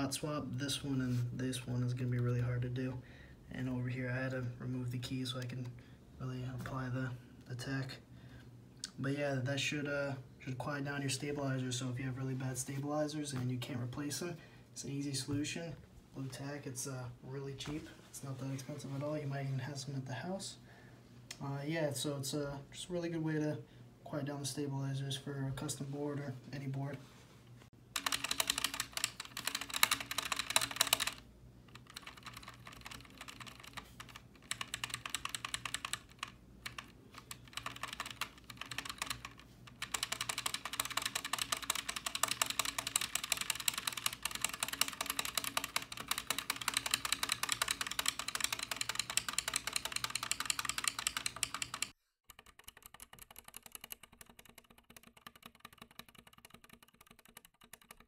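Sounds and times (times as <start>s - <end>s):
mechanical keyboard typing: 27.9s - 58.0s.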